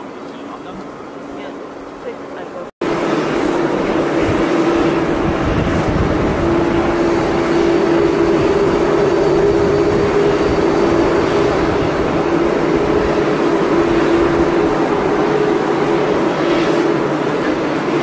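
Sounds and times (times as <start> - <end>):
jet engines roaring: 0.0 - 18.0.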